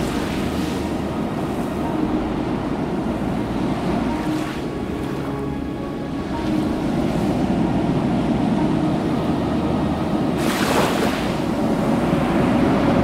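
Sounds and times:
wave breaking with hissing wash: 0.0s - 4.9s, 9.4s - 13.0s
ocean surf rushing: 0.0s - 13.0s.

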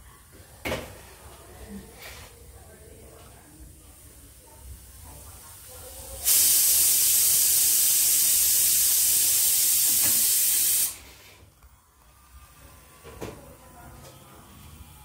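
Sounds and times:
loud steady hiss: 6.1s - 11.1s.

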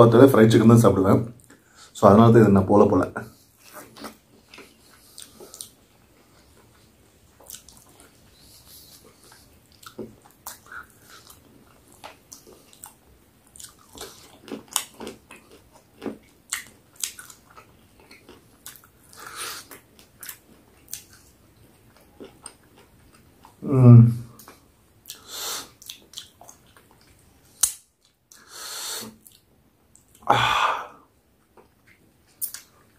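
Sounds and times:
person chewing wetly: 3.6s - 23.6s, 24.4s - 28.4s.

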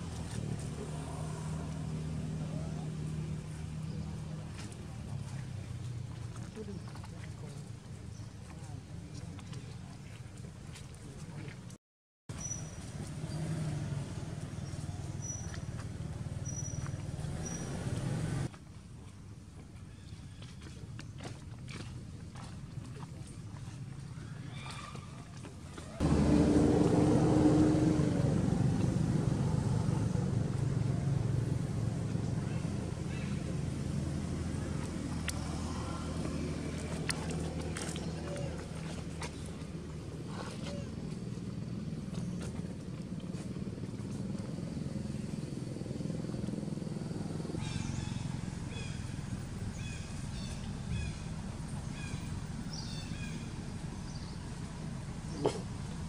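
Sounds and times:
engine drone: 0.0s - 7.5s, 12.3s - 18.6s, 26.0s - 56.0s
steady low rumble: 26.0s - 56.0s.

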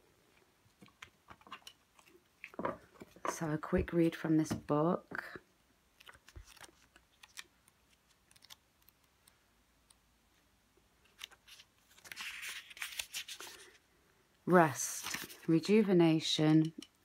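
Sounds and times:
pages being leafed through: 6.0s - 9.4s, 11.0s - 13.8s, 14.8s - 15.5s.

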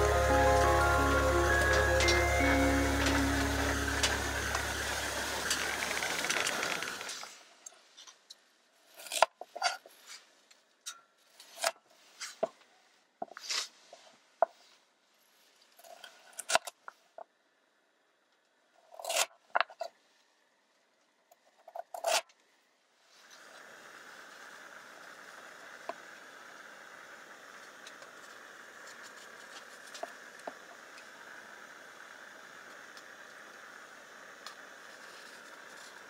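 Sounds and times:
snips and scrapes of food cutting: 18.9s - 19.8s.

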